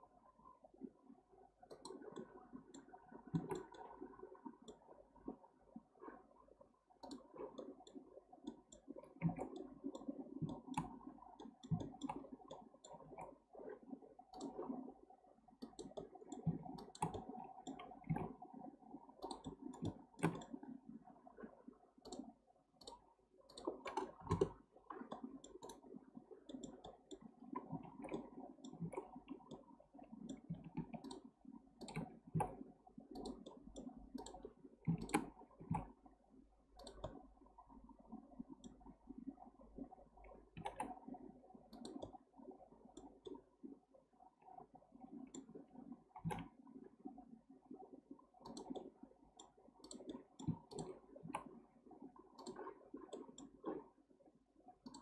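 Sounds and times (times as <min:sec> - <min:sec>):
mouse and keyboard clicks: 0:01.7 - 0:03.8, 0:15.6 - 0:18.2, 0:19.2 - 0:20.6, 0:22.0 - 0:25.9, 0:26.5 - 0:27.3, 0:30.3 - 0:35.9, 0:36.8 - 0:37.2, 0:40.6 - 0:41.0, 0:41.7 - 0:42.2, 0:48.4 - 0:51.5.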